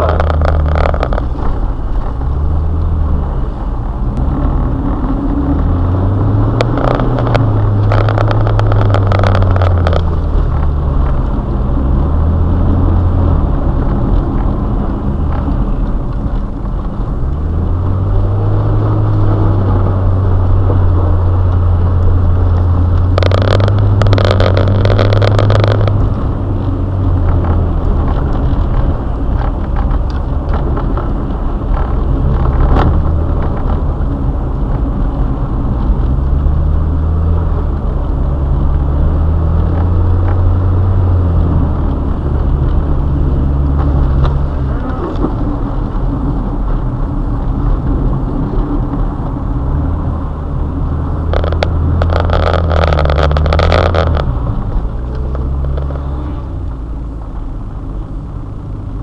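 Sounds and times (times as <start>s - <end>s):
rushing noise: 0.0s - 57.5s
car engine revving: 0.0s - 59.0s.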